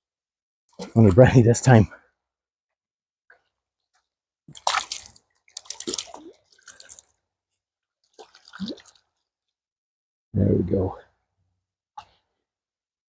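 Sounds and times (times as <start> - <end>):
hands splashing in shallow water: 4.5 - 7.2, 8.0 - 9.2.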